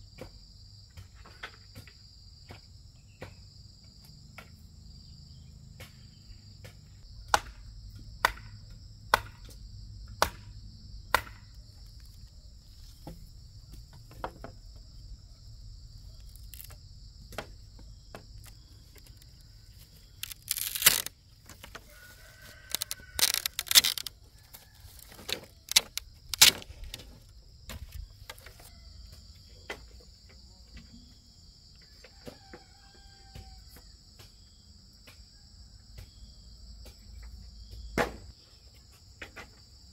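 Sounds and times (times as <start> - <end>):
insects chirring: 0.2 - 39.9
bamboo clattering: 11.1 - 15.2, 15.9 - 30.4
distant rooster crowing: 21.8 - 26.0, 28.5 - 29.4, 31.8 - 34.2.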